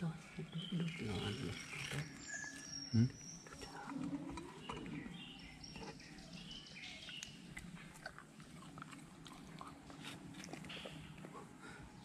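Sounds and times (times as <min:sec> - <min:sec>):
dog chewing fruit: 0:07.0 - 0:11.5.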